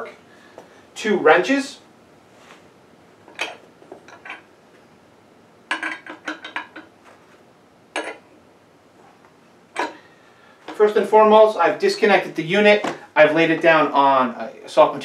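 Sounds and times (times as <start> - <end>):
metal wrenches clinking: 3.3 - 4.5, 5.7 - 6.9, 8.0 - 8.2, 9.8 - 10.0.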